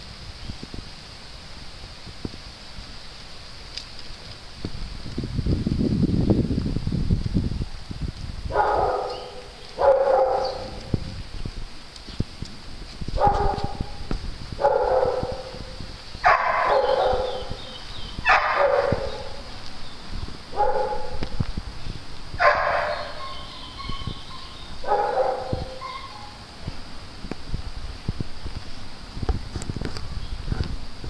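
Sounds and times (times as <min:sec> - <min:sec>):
dog barking: 0:08.5 - 0:10.9, 0:13.2 - 0:14.0, 0:14.6 - 0:17.6, 0:18.3 - 0:19.4, 0:20.6 - 0:21.2, 0:22.4 - 0:26.4.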